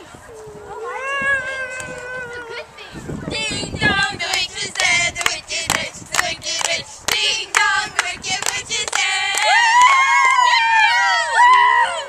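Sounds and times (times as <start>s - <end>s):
girls singing together: 2.5s - 12.0s.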